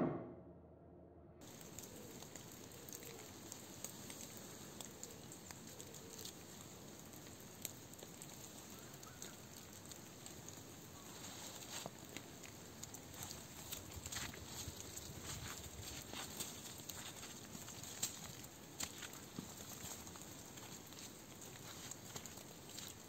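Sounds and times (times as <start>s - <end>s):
faint outdoor ambience: 1.4s - 23.0s
twigs crackling and rustling: 1.4s - 23.0s.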